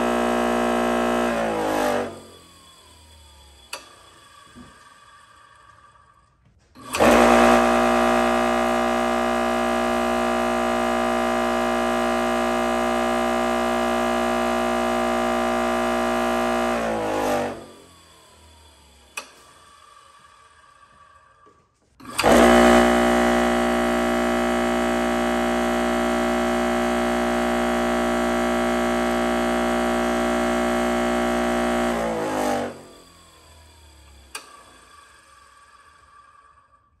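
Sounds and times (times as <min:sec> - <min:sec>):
bench grinder motor humming: 0:00.0 - 0:02.6, 0:06.8 - 0:19.3, 0:22.1 - 0:34.4.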